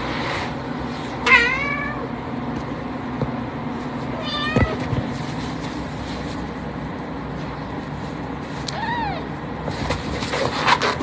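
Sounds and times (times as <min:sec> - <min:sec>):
cat meowing: 0:04.2 - 0:04.8, 0:08.7 - 0:09.3.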